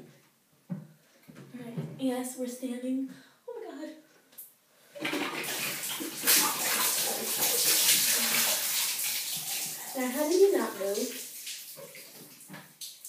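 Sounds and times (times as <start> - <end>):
water pouring and splashing: 5.0 - 13.0.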